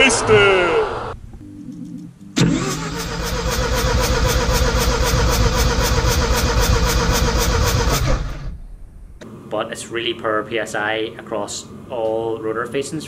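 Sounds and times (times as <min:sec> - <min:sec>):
engine cranking on starter motor: 0:02.4 - 0:08.7.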